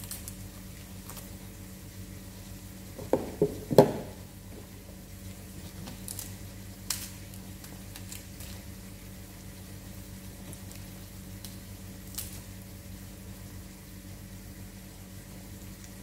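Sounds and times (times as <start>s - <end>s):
lettuce leaves tearing: 0.0s - 1.4s, 5.6s - 8.8s, 10.4s - 12.6s
low steady hum: 0.0s - 16.0s.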